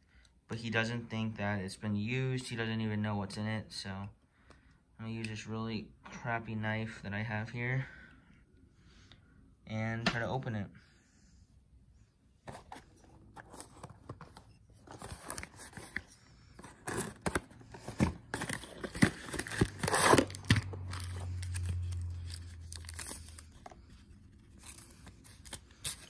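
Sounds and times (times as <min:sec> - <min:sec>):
cardboard box being opened: 0:12.5 - 0:23.7
knife cutting plastic wrapping: 0:15.1 - 0:23.4.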